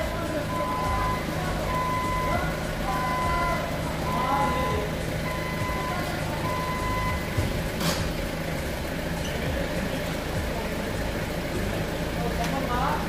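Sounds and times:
factory machinery hum: 0.0s - 13.0s
long electronic beeps: 0.5s - 7.4s.

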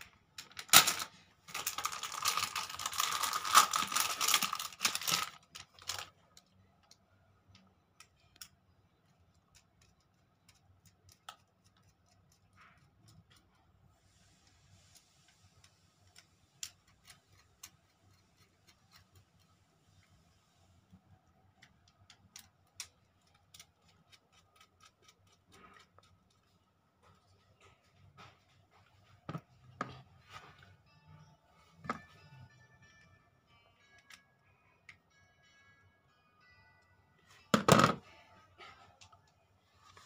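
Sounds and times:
rustling handling noise: 0.4s - 6.3s.

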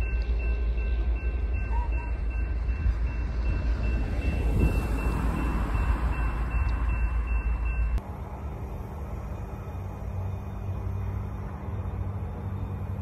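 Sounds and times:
crossing signal bell ringing: 0.0s - 8.0s
freight train rumbling: 0.0s - 13.0s.

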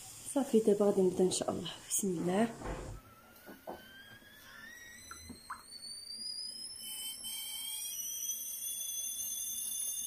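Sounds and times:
stovetop kettle whistling: 2.6s - 10.0s.

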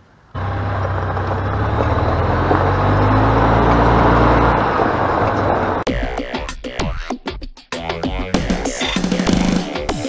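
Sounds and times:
tyres on gravel: 0.3s - 5.9s
golf cart engine running: 0.4s - 5.8s.

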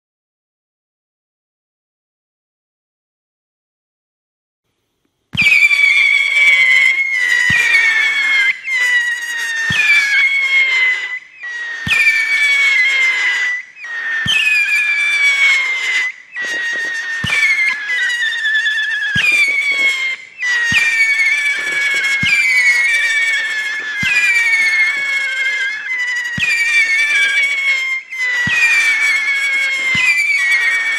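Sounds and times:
firework whistles falling in pitch: 5.3s - 30.9s
firework launch thumps: 5.4s - 6.0s, 6.8s - 9.0s, 11.8s - 30.9s.

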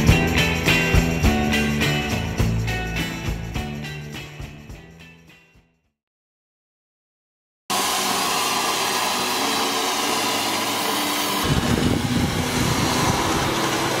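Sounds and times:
steam hissing: 7.7s - 14.0s.

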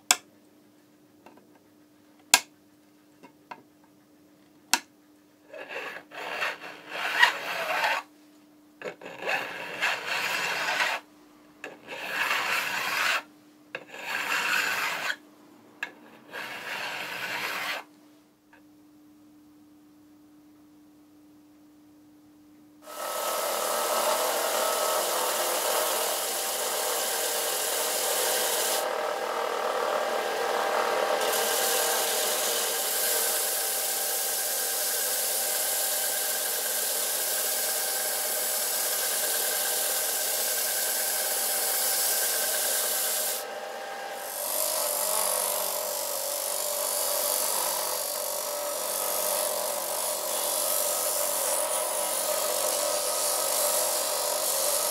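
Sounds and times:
wood hissing on sander belt: 22.8s - 54.9s
sander motor hum: 22.9s - 54.9s.

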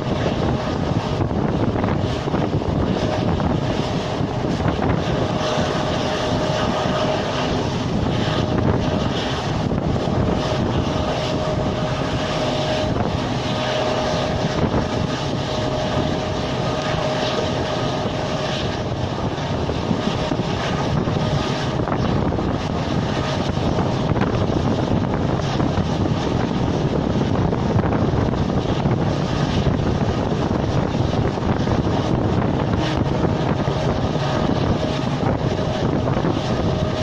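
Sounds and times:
diesel locomotive drone: 0.0s - 37.0s
wind and wheels on rails: 0.0s - 37.0s.

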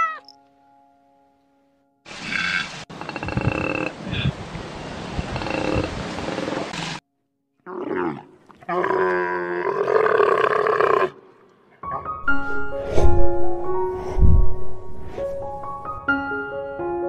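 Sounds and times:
camel groaning roar: 7.6s - 12.1s.

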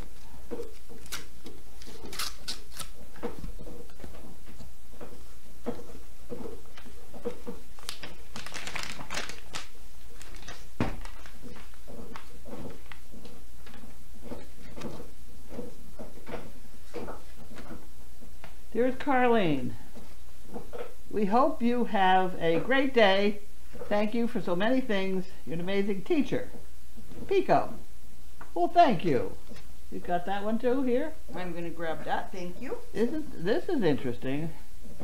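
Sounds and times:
paper rustling and crinkling: 6.7s - 15.0s.

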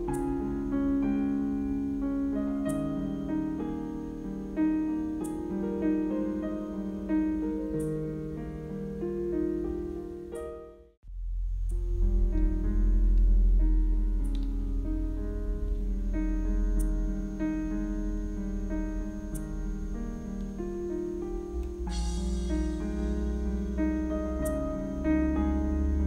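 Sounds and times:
background piano music: 0.0s - 26.0s
faint high tick: 14.2s - 14.5s.

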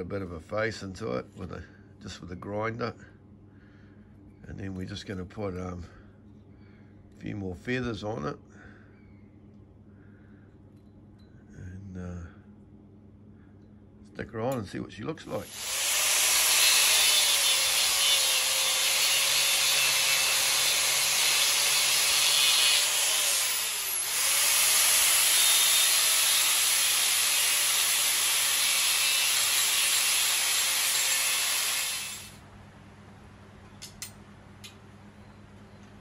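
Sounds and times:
angle grinder grinding metal: 15.4s - 32.4s.

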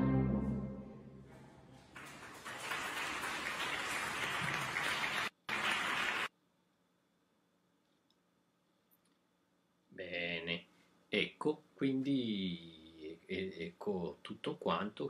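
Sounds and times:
orchestral chord: 0.0s - 1.2s
audience applause: 1.9s - 6.3s.

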